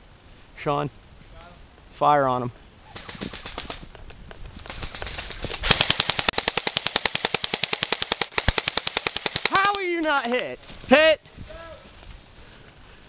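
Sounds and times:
airsoft guns rapid firing: 2.9 - 3.8, 4.7 - 9.9.

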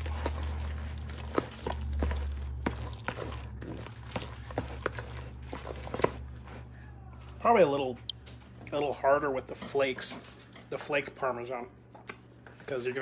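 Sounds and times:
spoon scraping in a mixing bowl: 0.0 - 6.6.

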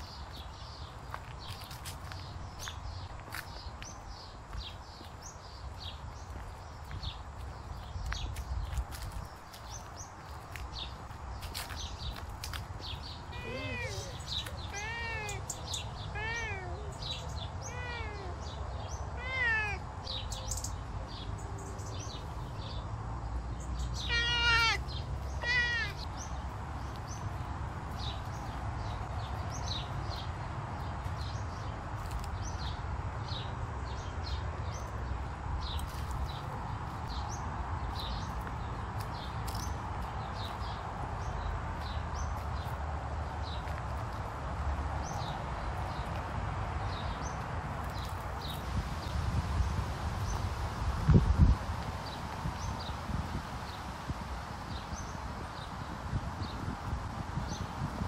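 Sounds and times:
cat meowing: 13.3 - 15.4, 16.1 - 16.9, 17.6 - 18.4, 19.2 - 19.8, 24.0 - 24.8, 25.4 - 26.0.

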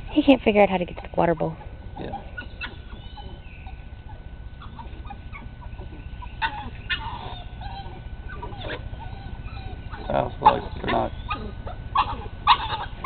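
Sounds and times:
puppies growling and yipping: 0.9 - 13.0
puppy high yelps: 2.0 - 3.8, 4.6 - 13.0.

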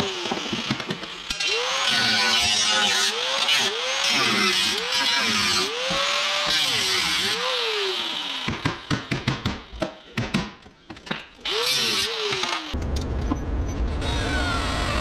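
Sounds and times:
power tool running: 0.0 - 8.9, 11.4 - 12.8.

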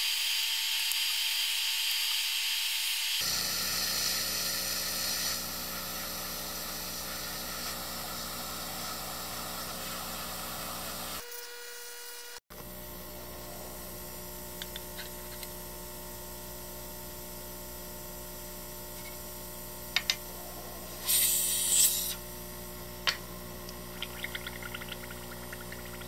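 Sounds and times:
airbrush spraying hiss: 3.2 - 11.2, 20.3 - 22.3
steady hum: 3.2 - 11.3, 12.5 - 26.0.

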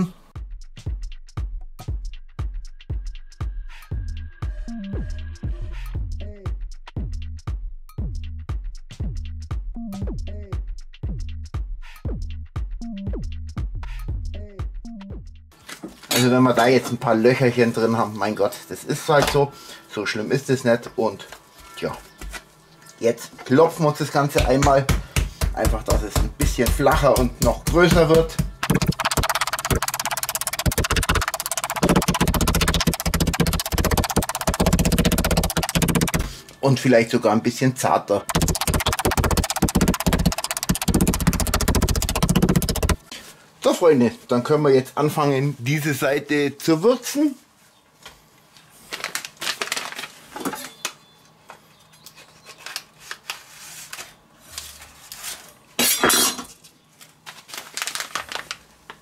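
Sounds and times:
music with fast percussion beat: 0.4 - 15.3, 24.4 - 36.4, 38.3 - 43.1
bass line: 3.9 - 15.4, 27.4 - 36.3, 38.3 - 43.0.

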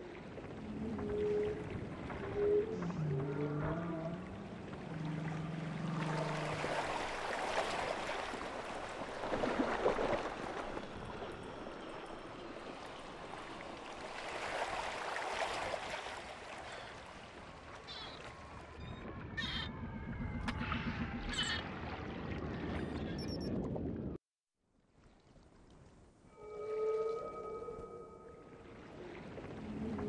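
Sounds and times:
low whale call: 0.0 - 7.8, 26.3 - 30.0.

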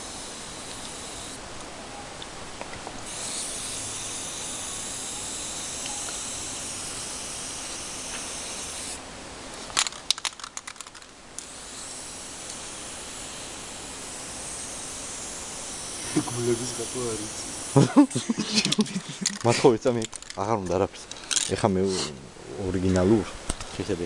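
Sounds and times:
spray-paint can hissing: 0.0 - 1.4, 3.0 - 9.0, 9.8 - 19.5
spray can ball rattling: 0.1 - 1.4, 3.1 - 9.0, 9.6 - 17.9, 18.5 - 21.6.

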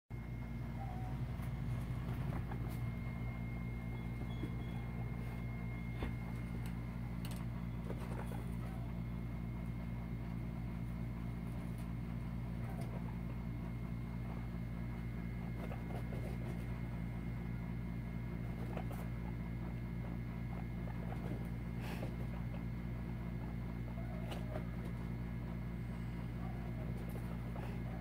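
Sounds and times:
faint high whine: 0.2 - 9.8
steady low hum: 0.2 - 28.0.

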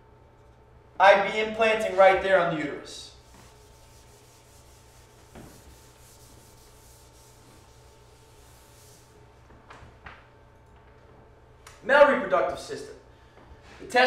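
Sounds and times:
eraser wiping whiteboard: 1.7 - 2.5, 3.1 - 9.3.

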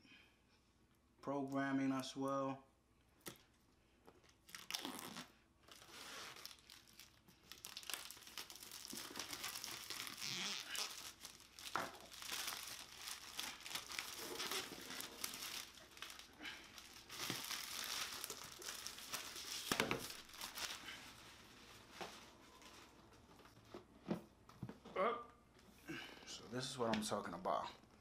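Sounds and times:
plastic film crinkling: 4.2 - 23.6.

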